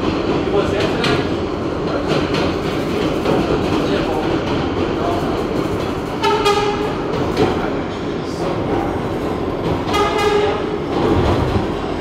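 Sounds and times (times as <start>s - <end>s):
train wheels rumbling on track: 0.0s - 12.0s.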